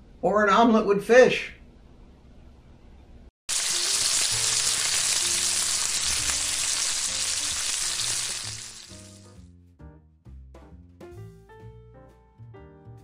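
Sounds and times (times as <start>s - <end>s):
bacon sizzling in a frying pan: 3.5s - 9.4s.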